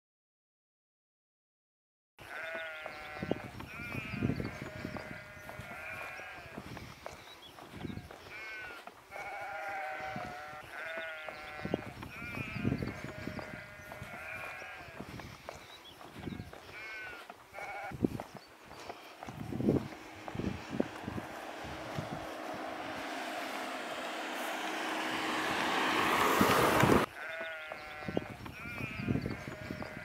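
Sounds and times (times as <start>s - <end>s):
sheep bleating: 2.2s - 6.7s, 7.9s - 15.1s, 16.3s - 18.0s, 18.8s - 25.6s, 27.0s - 30.0s.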